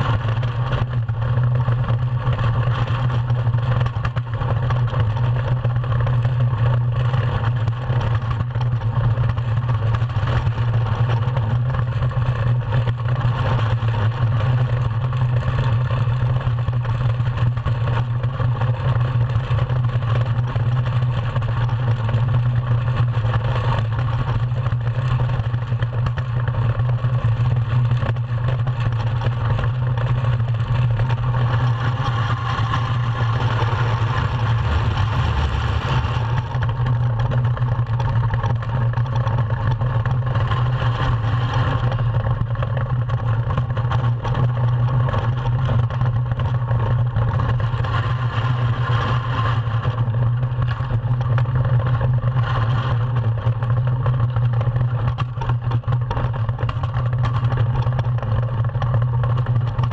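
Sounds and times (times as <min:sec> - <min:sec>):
runners rumbling on ice: 0:00.0 - 0:59.9
rushing wind: 0:30.4 - 0:37.6.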